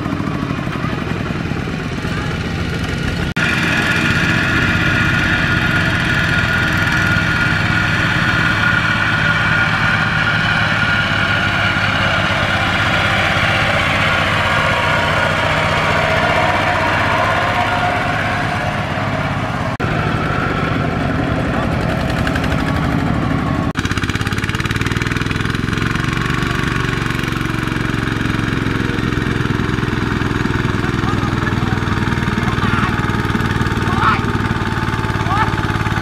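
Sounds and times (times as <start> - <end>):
diesel tiller engine running: 0.0 - 36.0.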